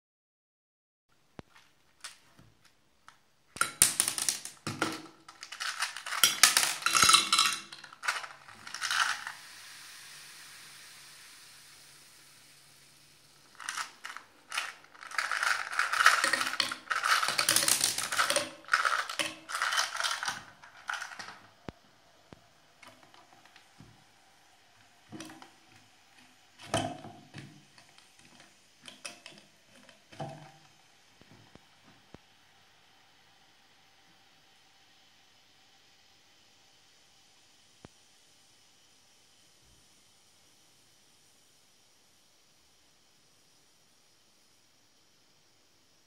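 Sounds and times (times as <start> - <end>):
mints clicking onto can top: 3.1 - 9.4, 13.6 - 21.4
mints rattling in plastic box: 3.6 - 9.4, 13.5 - 21.5.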